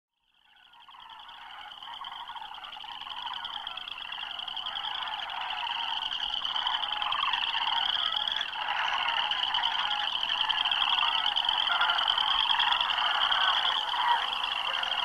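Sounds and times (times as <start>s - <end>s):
low babble of animal calls: 0.4s - 15.0s
high trilling animal calls: 0.8s - 15.0s.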